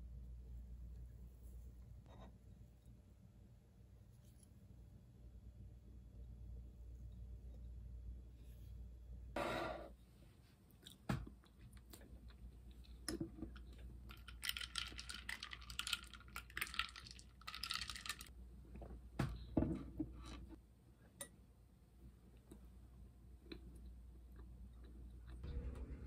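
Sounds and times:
ice cubes clinking in a glass: 14.2s - 18.3s.

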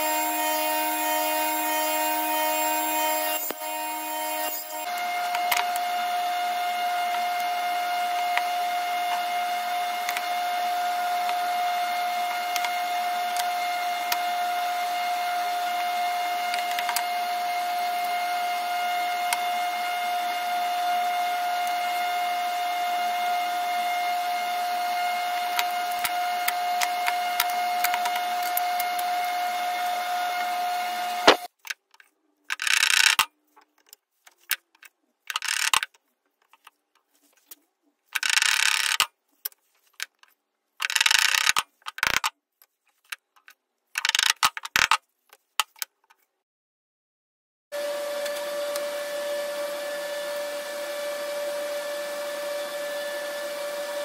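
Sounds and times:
machine motor whining: 0.0s - 5.9s.

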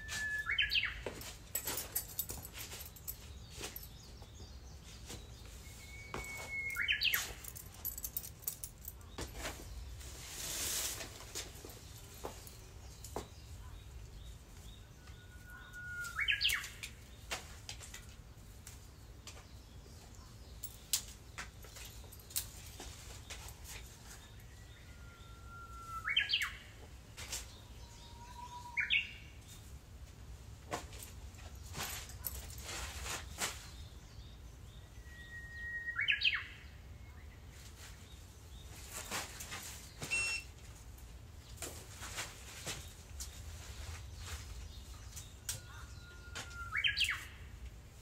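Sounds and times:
bird singing whistled phrase: 0.0s - 1.0s, 5.6s - 7.4s, 15.1s - 16.8s, 35.0s - 36.5s
bird singing whistled song: 0.0s - 1.2s, 5.4s - 7.5s, 14.8s - 16.8s, 24.4s - 26.7s, 27.9s - 29.2s, 34.7s - 37.2s, 40.0s - 40.4s, 45.6s - 47.4s.

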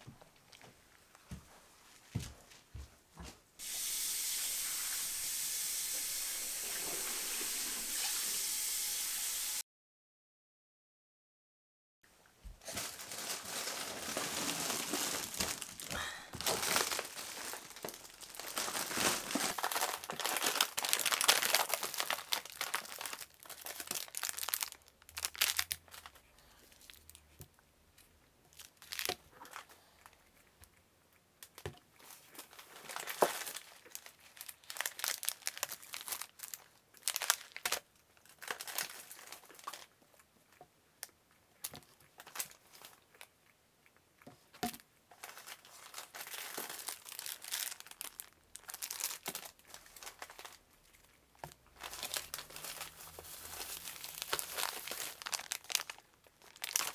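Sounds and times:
plastic packaging crinkling: 12.6s - 27.3s, 28.5s - 29.9s, 31.5s - 40.0s, 41.0s - 43.3s, 45.2s - 56.9s.

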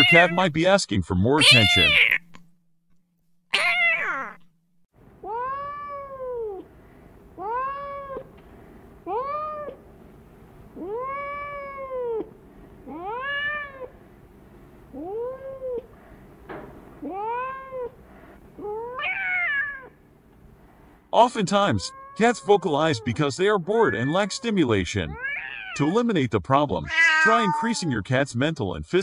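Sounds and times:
cat meowing: 0.0s - 0.4s, 1.4s - 2.3s, 3.6s - 4.4s, 5.2s - 6.7s, 7.4s - 8.3s, 9.1s - 9.8s, 10.8s - 14.0s, 14.9s - 15.9s, 17.0s - 18.0s, 18.6s - 20.0s, 21.4s - 25.9s, 26.8s - 27.9s.

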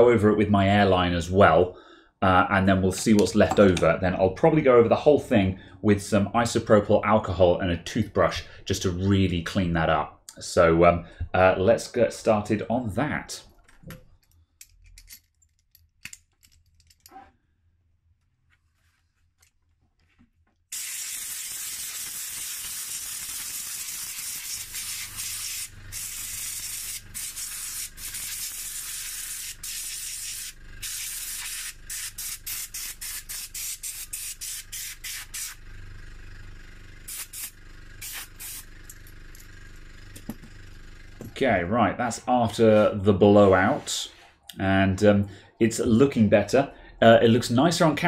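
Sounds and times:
compressed air blow gun hissing: 20.7s - 35.6s, 37.1s - 38.7s.

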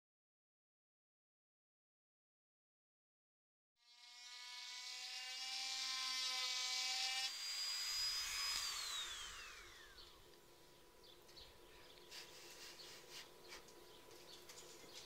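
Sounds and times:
electric rotary tool on wood: 3.8s - 10.2s
rotary tool whine winding down: 3.8s - 10.2s.

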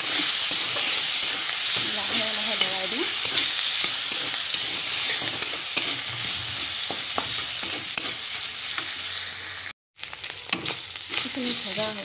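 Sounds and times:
metal spatula scraping pan: 0.0s - 9.1s
vegetables sizzling in oil: 0.0s - 12.0s.

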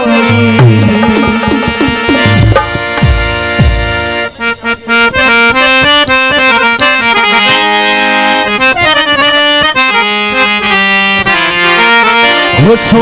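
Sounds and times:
person singing: 0.0s - 2.2s
harmonium playing: 0.0s - 13.0s.

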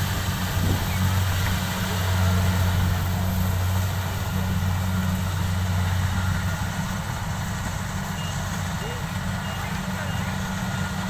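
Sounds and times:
combine harvester engine droning: 0.0s - 11.0s.

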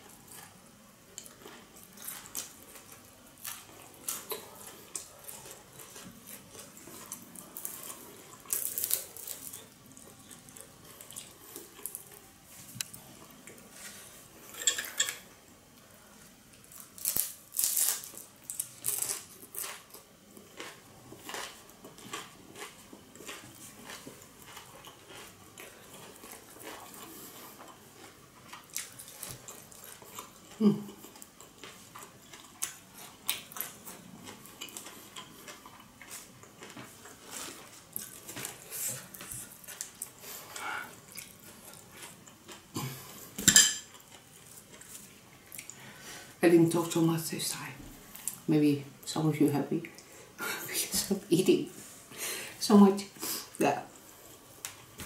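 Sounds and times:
crunching and chewing food: 0.0s - 47.0s, 48.0s - 48.5s
tableware clinking against bowl: 14.6s - 15.2s, 43.4s - 43.9s.

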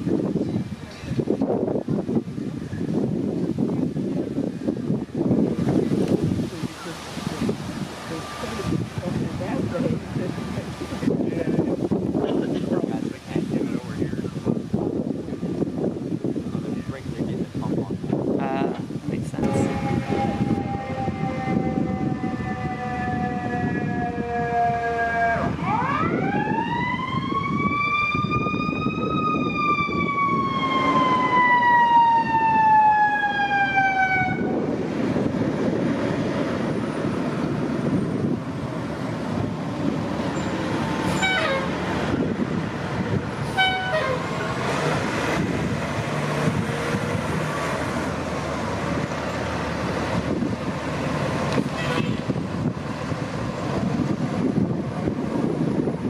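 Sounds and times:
truck engine and road noise: 0.0s - 56.0s
fire engine siren wailing: 19.4s - 56.0s.

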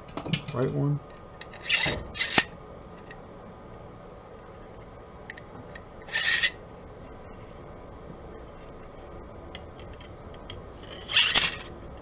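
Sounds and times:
metal rod scraping plastic: 6.1s - 6.6s.

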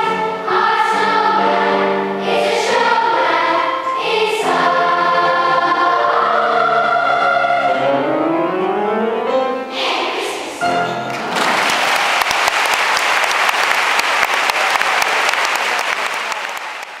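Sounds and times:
children's choir singing: 0.0s - 12.2s
audience applause: 11.1s - 17.0s.

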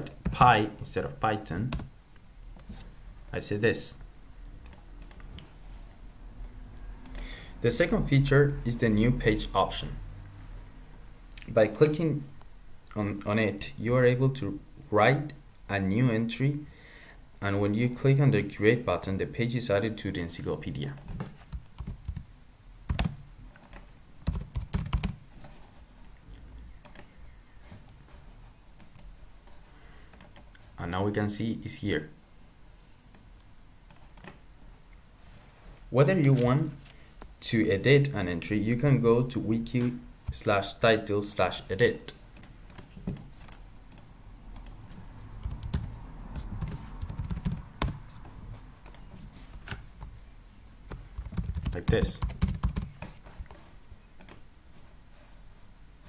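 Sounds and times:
keyboard typing: 4.6s - 5.5s, 20.9s - 22.3s, 22.9s - 25.2s, 26.8s - 27.2s, 30.1s - 30.5s, 33.9s - 34.4s, 42.3s - 44.8s, 45.4s - 50.2s, 50.9s - 53.2s, 54.2s - 54.4s.

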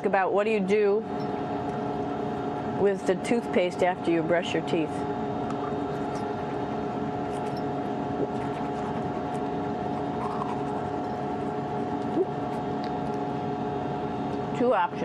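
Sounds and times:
cabin fans humming: 0.0s - 15.0s
toothbrush scrubbing: 7.3s - 7.6s, 8.2s - 13.2s.

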